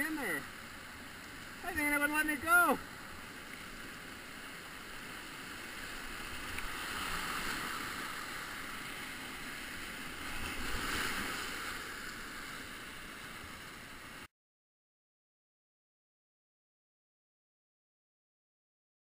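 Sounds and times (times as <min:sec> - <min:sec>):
whitewater rapids rushing: 0:01.4 - 0:03.2.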